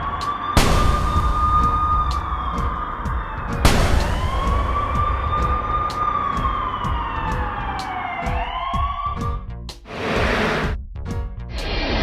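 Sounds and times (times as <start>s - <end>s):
police siren wailing: 0.0s - 9.5s.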